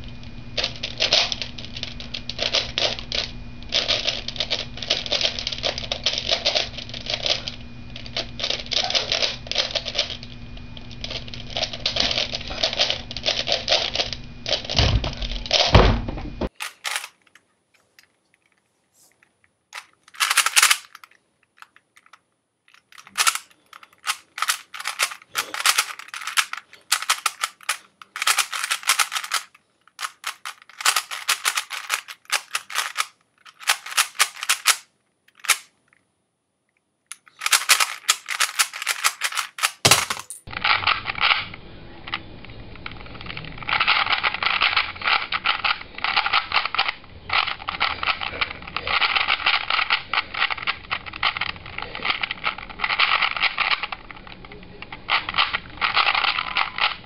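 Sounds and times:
puzzle cube clacking: 0:16.5 - 0:18.6, 0:19.8 - 0:35.8, 0:37.1 - 0:41.5, 0:42.8 - 0:57.0.

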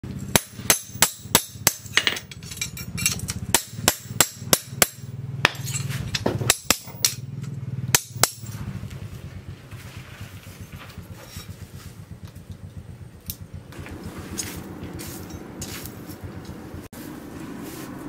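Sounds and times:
low hum: 0:00.0 - 0:18.0
hammer striking steel on anvil: 0:00.2 - 0:08.6.

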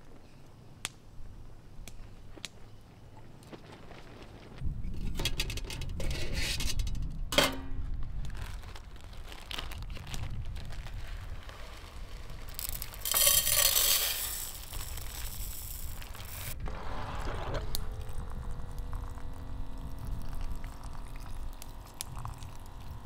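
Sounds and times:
plastic bag rustling: 0:08.1 - 0:18.4
rice pouring into metal pot: 0:11.7 - 0:17.3.

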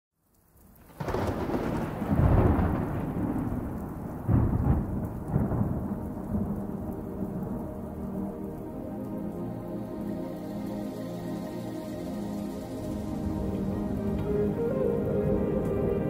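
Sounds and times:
rain hissing: 0:00.3 - 0:16.0
thunder rumbling: 0:00.8 - 0:16.0
ambient music pad: 0:04.9 - 0:16.0.

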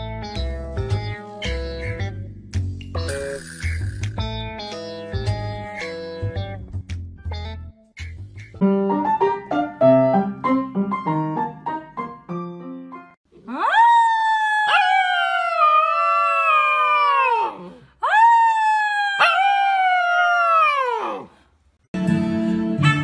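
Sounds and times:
puppy howling: 0:13.5 - 0:21.3.

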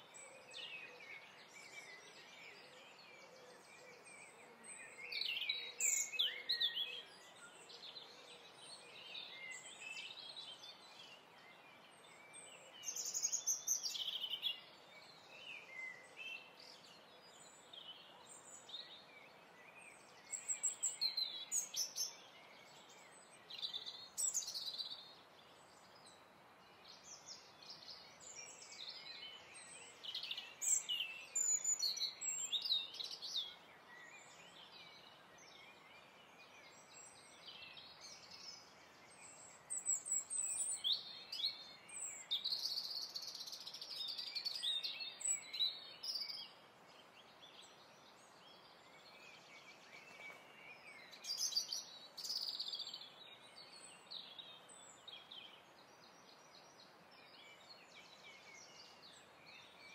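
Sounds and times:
birds chirping and singing: 0:26.8 - 0:59.9.

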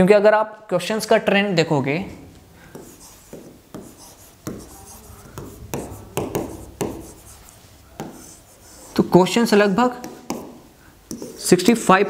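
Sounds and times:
stylus tapping on touchscreen: 0:02.7 - 0:07.3, 0:10.0 - 0:11.3.

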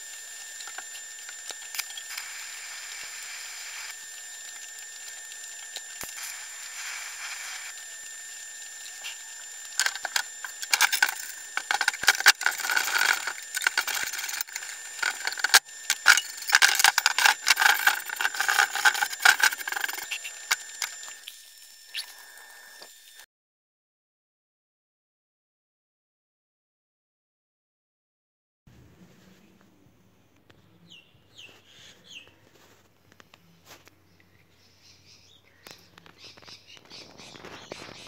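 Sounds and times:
welding arc crackling and popping: 0:00.0 - 0:23.2
welding hiss: 0:00.0 - 0:23.2.

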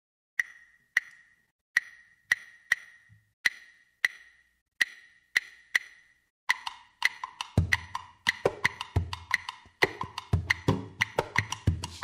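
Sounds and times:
woody percussion knocks: 0:07.2 - 0:12.0.

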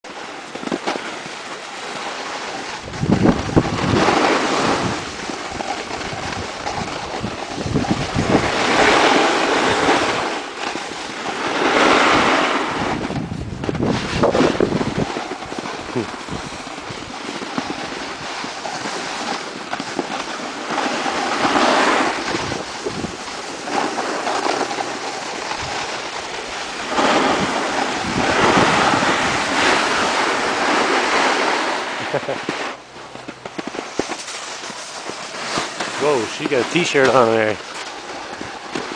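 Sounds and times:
snowboards scraping over snow: 0:00.1 - 0:38.9
wind buffeting the microphone: 0:02.8 - 0:20.1, 0:21.0 - 0:31.8.

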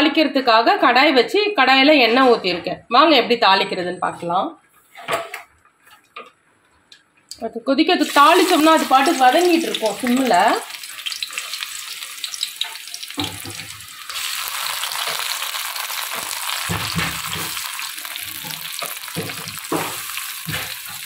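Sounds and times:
onion and tomato sizzling in oil: 0:08.0 - 0:21.0
spoon knocking against pan: 0:12.6 - 0:13.8, 0:18.4 - 0:21.0.

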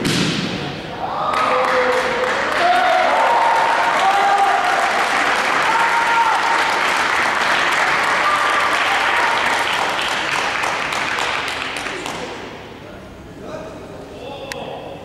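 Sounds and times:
audience applauding: 0:01.3 - 0:12.3.

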